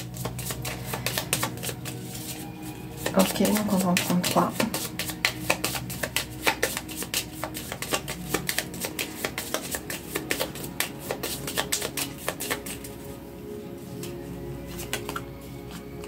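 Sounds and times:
cards being shuffled: 0.0s - 13.2s, 13.9s - 16.0s
soft background music: 0.0s - 16.0s.

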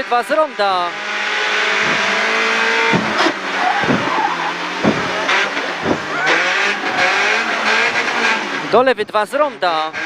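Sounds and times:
car engine revving: 0.0s - 10.0s
short sharp knocks: 1.7s - 4.2s, 4.8s - 8.0s.

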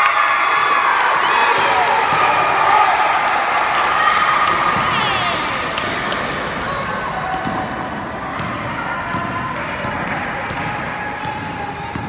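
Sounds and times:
murmur of voices: 0.0s - 12.0s
basketball bouncing on gym floor: 7.3s - 12.0s.

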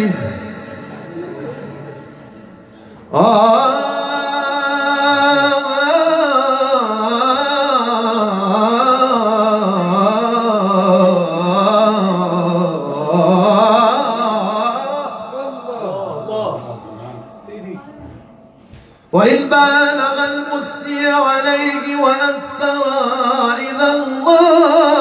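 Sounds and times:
man singing unaccompanied: 3.1s - 17.0s, 19.1s - 25.0s.

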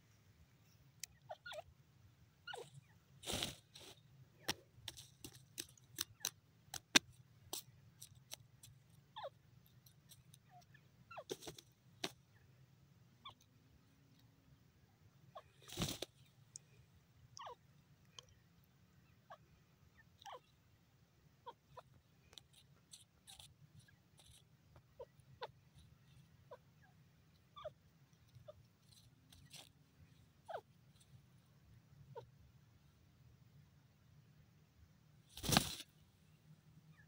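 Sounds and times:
bird pecking and scratching in sand: 2.4s - 12.4s, 15.4s - 16.8s, 21.5s - 31.6s, 35.2s - 36.0s.

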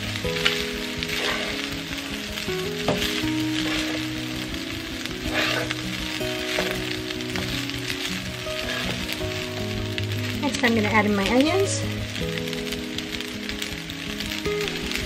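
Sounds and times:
background music with held notes: 0.0s - 15.0s
rice sizzling in a pan: 0.0s - 15.0s
spatula scraping a pan: 0.4s - 1.9s, 2.9s - 9.4s.

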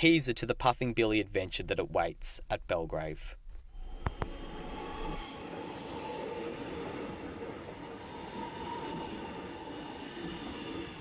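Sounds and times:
electric train rumbling: 3.7s - 11.0s
high train whine: 3.7s - 11.0s.

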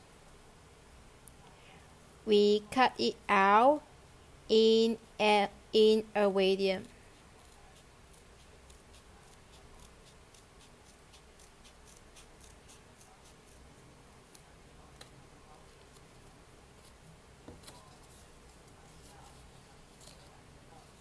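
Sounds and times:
scissors snipping paper: 7.4s - 13.6s.

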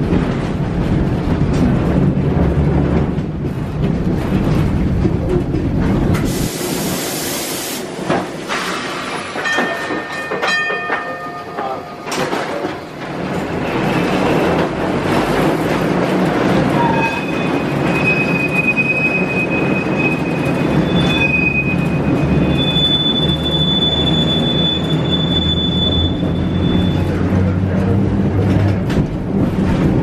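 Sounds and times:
streetcar wheels rumbling on rail: 0.0s - 30.0s
high wheel squeal: 16.7s - 27.3s.

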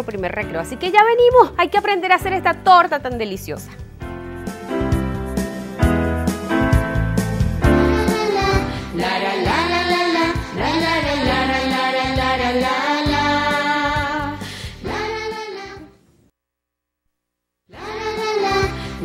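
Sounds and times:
upbeat children's music: 0.0s - 16.0s, 17.7s - 19.0s
woman and children singing: 8.0s - 15.9s, 17.7s - 19.0s.

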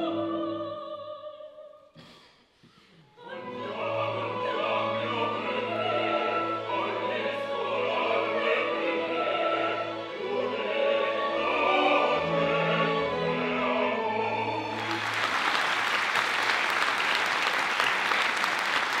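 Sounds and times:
opera singers singing: 0.0s - 1.8s, 3.2s - 14.9s
orchestra playing: 3.5s - 16.7s
audience applause: 14.7s - 19.0s.

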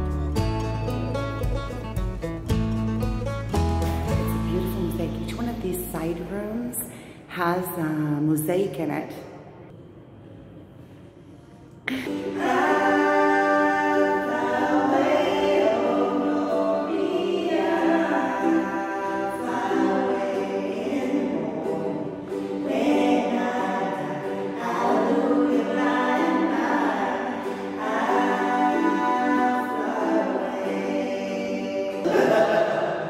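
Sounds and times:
strummed ukulele: 0.0s - 6.3s, 11.9s - 32.9s
women singing: 11.9s - 32.6s.

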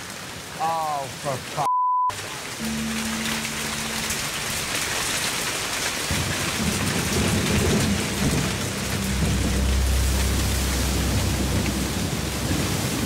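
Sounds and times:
heavy rain pouring: 0.0s - 13.0s
rolling thunder rumble: 3.0s - 13.0s.

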